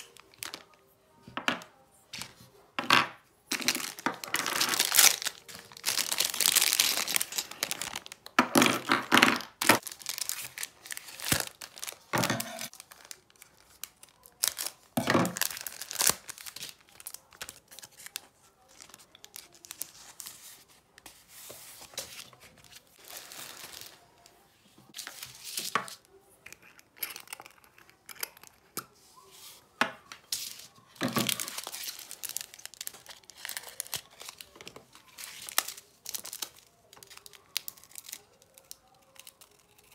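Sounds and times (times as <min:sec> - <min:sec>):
plastic packaging crinkling and tearing: 0:00.0 - 0:00.8, 0:03.5 - 0:20.8, 0:21.8 - 0:24.3, 0:30.3 - 0:39.9.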